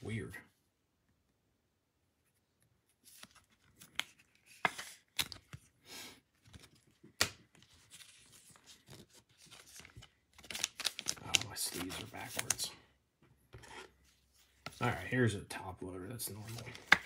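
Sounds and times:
cards scraping rustles: 0:02.9 - 0:05.8, 0:07.6 - 0:12.7, 0:13.6 - 0:15.0, 0:16.3 - 0:17.0.

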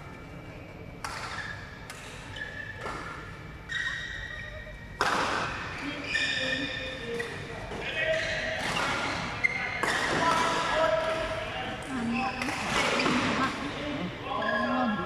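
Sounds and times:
shoes squeaking on court: 0:01.1 - 0:04.8, 0:05.8 - 0:10.1.

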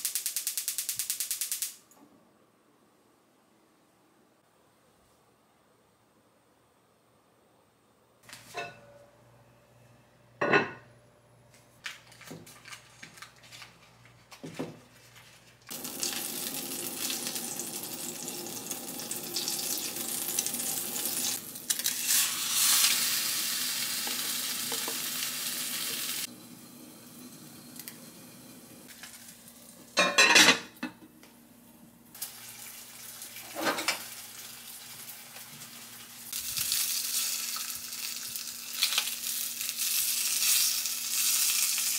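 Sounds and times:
cookware clattering: 0:08.5 - 0:08.9, 0:10.4 - 0:10.8, 0:30.0 - 0:31.0, 0:33.5 - 0:34.1
cookware knocks and clinks: 0:10.4 - 0:10.9, 0:30.0 - 0:31.1
food sizzling in oil: 0:15.7 - 0:30.0, 0:32.2 - 0:41.9.

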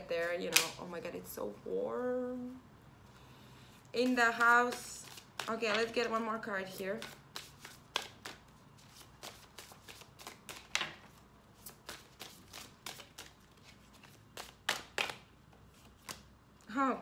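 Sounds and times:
cards being shuffled: 0:00.2 - 0:00.9, 0:04.0 - 0:16.3.

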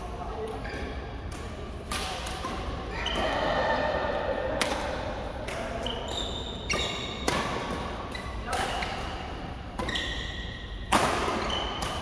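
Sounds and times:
rackets smacking shuttlecock: 0:00.4 - 0:03.4, 0:04.5 - 0:12.0
shoes squeaking on floor: 0:05.8 - 0:07.2, 0:09.8 - 0:10.8, 0:11.4 - 0:12.0.

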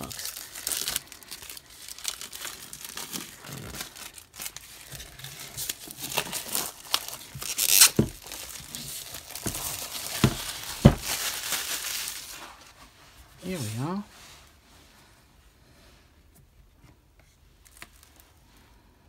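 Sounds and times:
plastic shrink wrap tearing: 0:00.0 - 0:12.8.

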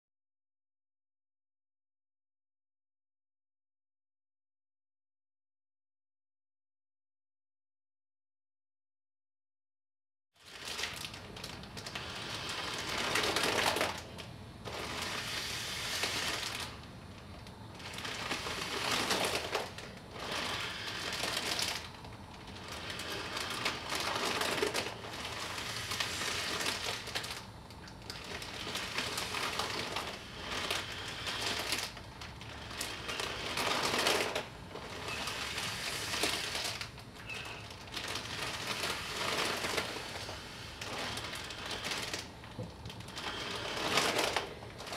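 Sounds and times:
plastic bag crinkling: 0:10.4 - 0:44.9
people breathing through masks: 0:17.8 - 0:21.9, 0:22.5 - 0:27.2, 0:28.6 - 0:36.8, 0:38.1 - 0:42.4.

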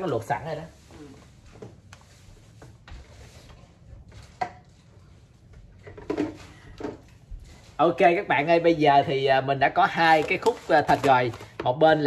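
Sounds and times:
packaging clicks and knocks: 0:10.0 - 0:11.7.

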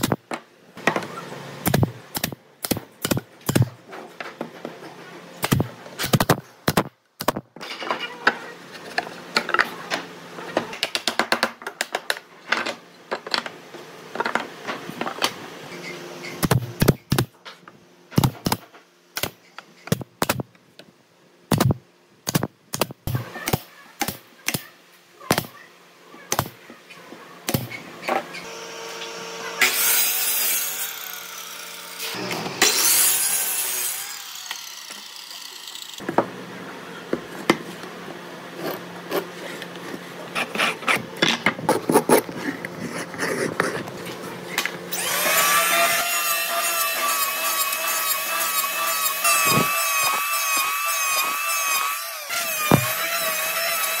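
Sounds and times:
nail gun shots: 0:01.6 - 0:03.7
loud power tool running: 0:44.9 - 0:54.0.

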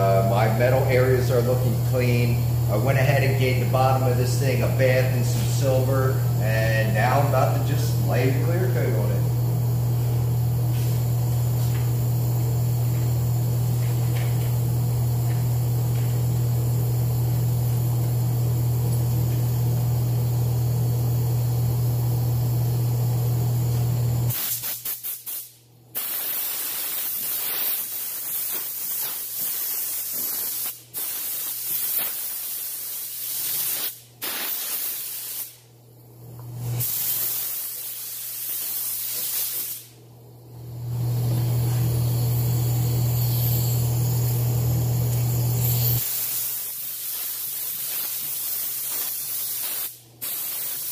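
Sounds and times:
steady low hum: 0:00.0 - 0:24.3, 0:39.9 - 0:46.0
spray gun hissing: 0:24.3 - 0:35.6, 0:36.6 - 0:39.9, 0:41.1 - 0:50.9.

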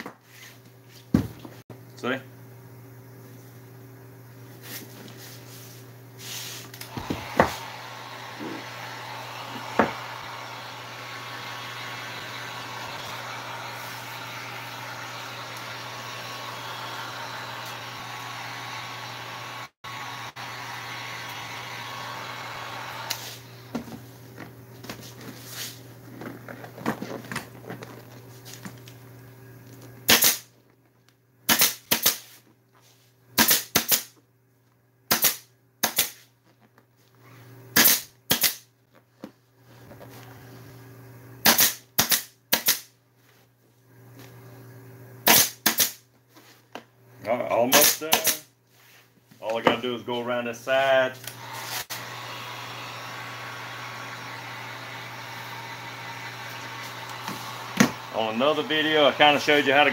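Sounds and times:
heat gun blowing: 0:06.2 - 0:23.8, 0:45.2 - 0:46.0, 0:47.7 - 0:48.5, 0:50.9 - 0:59.9
pneumatic staple gun firing: 0:06.8 - 0:07.8, 0:30.1 - 0:30.5, 0:31.5 - 0:32.3, 0:33.4 - 0:34.2, 0:35.1 - 0:36.2, 0:37.8 - 0:38.6, 0:41.4 - 0:42.9, 0:45.2 - 0:46.0, 0:47.7 - 0:48.5, 0:56.5 - 0:58.1.

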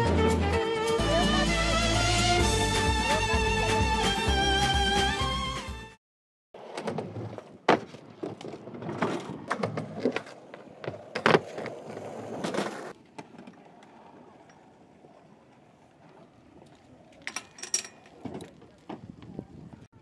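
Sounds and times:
skateboard clacking: 0:06.6 - 0:19.4
skateboard wheels rolling on wood: 0:06.6 - 0:19.9.

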